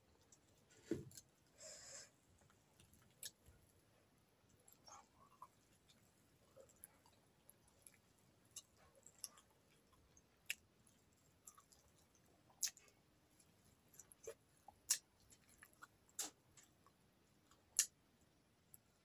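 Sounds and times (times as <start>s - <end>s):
chewing with wet mouth clicks: 2.4s - 3.5s, 4.5s - 13.0s, 13.9s - 18.0s.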